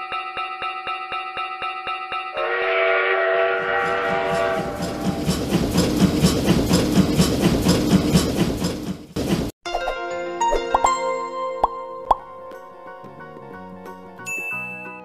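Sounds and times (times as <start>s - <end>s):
train horn: 2.4s - 5.1s
train wheels clacking on rails: 3.7s - 9.5s.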